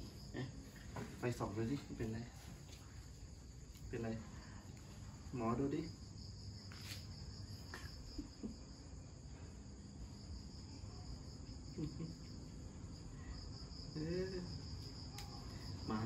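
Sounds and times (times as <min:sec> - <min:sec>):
crickets chirring: 0:00.0 - 0:16.0.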